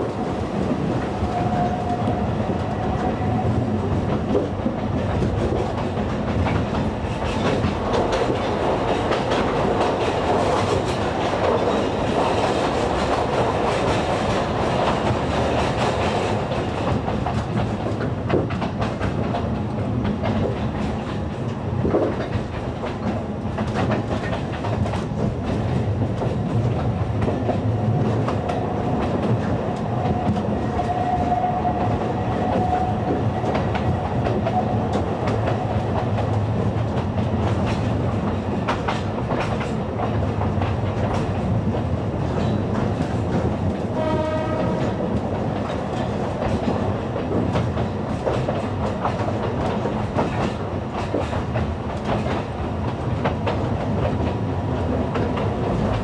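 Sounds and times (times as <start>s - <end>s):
train rumble: 0.0s - 56.0s
wheels clicking over rail joints: 2.6s - 31.1s.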